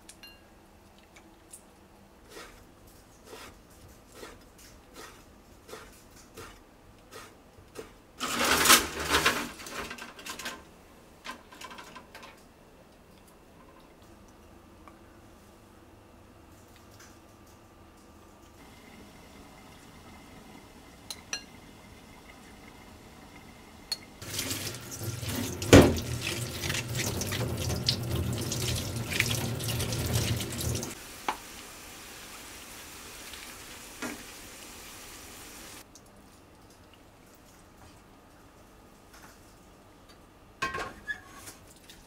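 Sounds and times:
tap water splashing into bowl: 24.2s - 31.4s.

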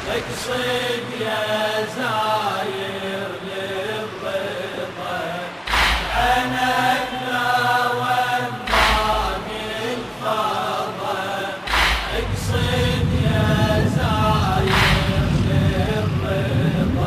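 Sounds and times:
person chanting slowly: 0.0s - 17.0s
deep drum thumps: 11.7s - 17.0s.

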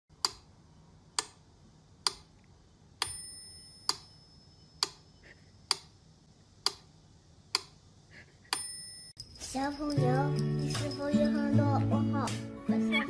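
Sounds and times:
metronome bell ringing: 3.0s - 4.8s, 8.5s - 12.3s
metronome ticking: 3.0s - 5.1s.

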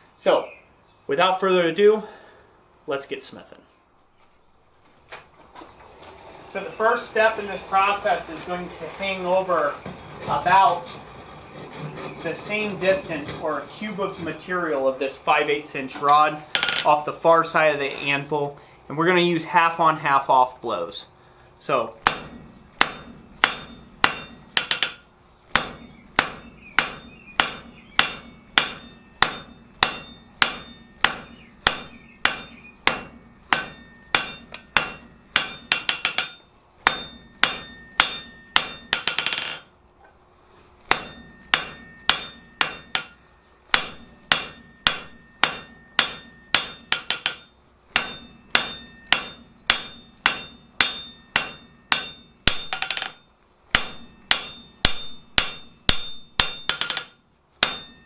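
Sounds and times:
hammer striking steel on anvil: 16.5s - 17.1s, 22.0s - 39.8s, 40.9s - 58.0s.

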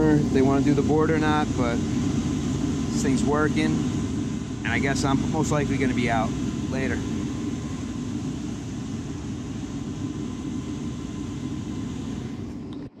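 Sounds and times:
heating unit hum and rumble: 0.0s - 13.0s.

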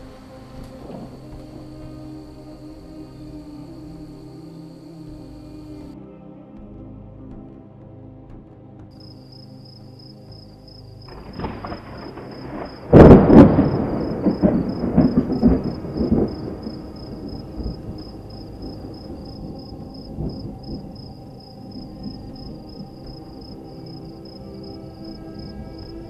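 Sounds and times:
thunder crack and rumbles: 0.0s - 2.8s, 10.7s - 24.4s.

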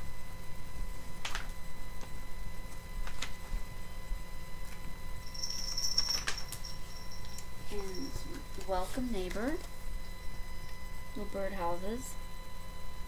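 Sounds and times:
faint steady hum: 0.0s - 13.0s
paper rustling: 0.9s - 1.6s, 2.7s - 3.7s.

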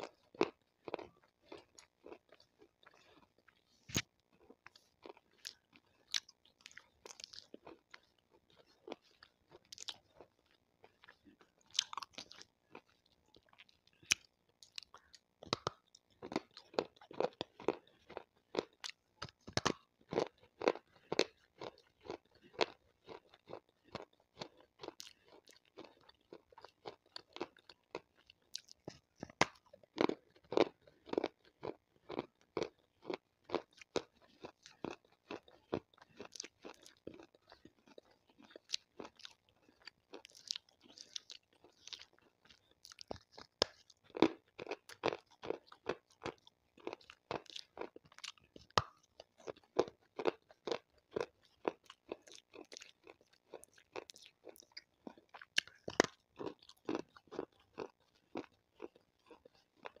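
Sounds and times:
crunching and chewing stone: 0.0s - 60.0s.

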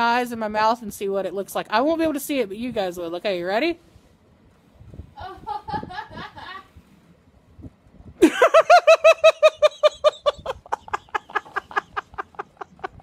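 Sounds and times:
woman laughing high-pitched: 5.2s - 6.7s, 8.2s - 13.0s.

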